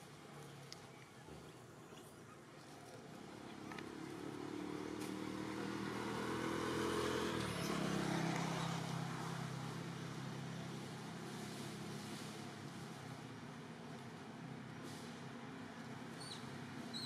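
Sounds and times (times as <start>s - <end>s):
motor vehicle engine passing: 1.2s - 12.9s.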